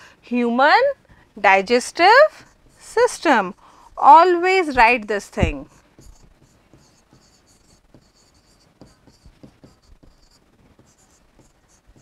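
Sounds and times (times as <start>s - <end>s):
stylus scratching on board: 4.8s - 12.0s
stylus tapping: 4.8s - 12.0s.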